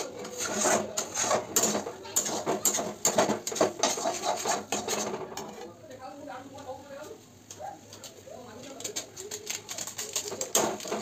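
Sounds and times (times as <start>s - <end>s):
spatula scraping metal pan: 0.0s - 5.7s.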